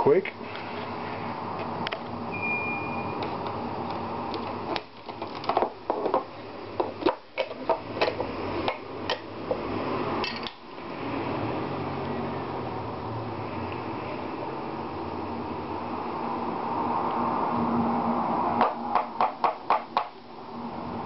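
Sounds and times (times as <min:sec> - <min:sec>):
steady background noise: 0:00.0 - 0:21.0.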